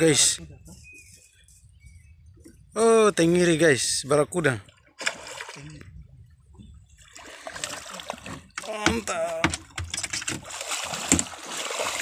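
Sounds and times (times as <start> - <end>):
water splashing: 4.6 - 5.9, 7.0 - 12.0.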